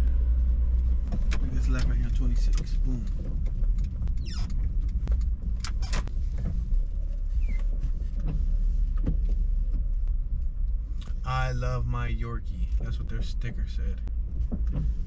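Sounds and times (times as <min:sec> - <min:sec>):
car engine and tyres rumble: 0:00.0 - 0:15.0.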